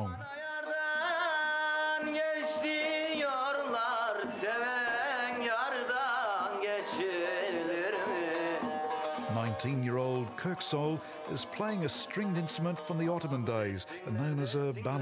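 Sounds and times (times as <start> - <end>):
man singing: 0.0 - 15.0
long-necked lute playing: 7.2 - 13.9.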